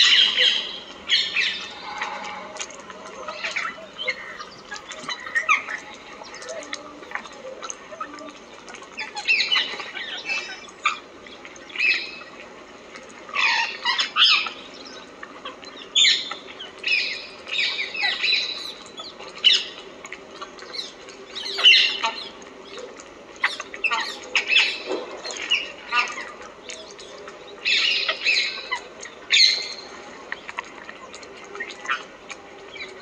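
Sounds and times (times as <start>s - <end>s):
birds squawking: 0.0s - 6.9s, 23.4s - 26.8s.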